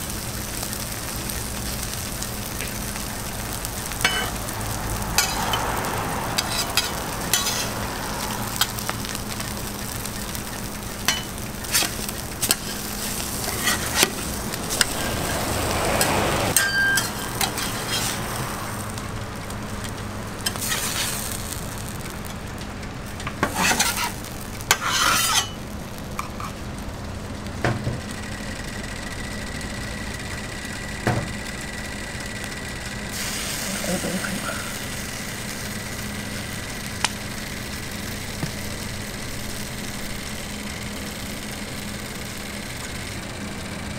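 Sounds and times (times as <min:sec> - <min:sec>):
food sizzling on griddle: 0:00.0 - 0:43.9
metal spatulas scraping griddle: 0:04.0 - 0:04.3, 0:05.2 - 0:05.7, 0:06.4 - 0:07.8, 0:11.0 - 0:18.4, 0:20.4 - 0:21.3, 0:23.3 - 0:25.6.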